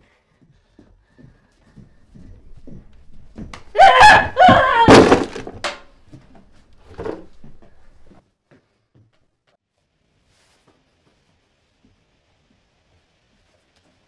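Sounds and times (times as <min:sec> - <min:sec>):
heavy thud of body landing: 0:02.6 - 0:05.8
person yelling: 0:03.8 - 0:05.3.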